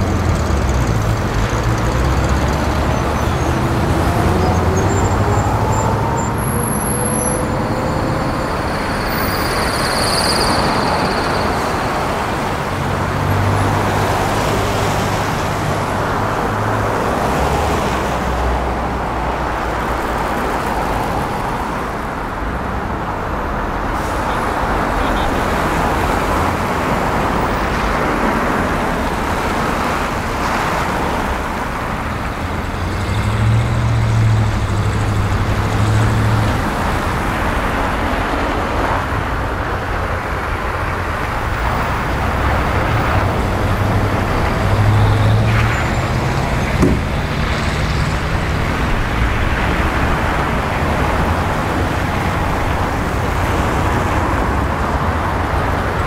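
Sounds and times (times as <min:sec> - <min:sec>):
bus engine drone: 0:00.0 - 0:56.0.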